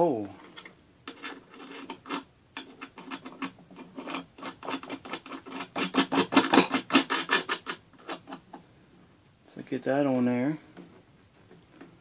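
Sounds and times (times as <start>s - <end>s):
nut rasping on threaded bolt: 0.4s - 8.6s.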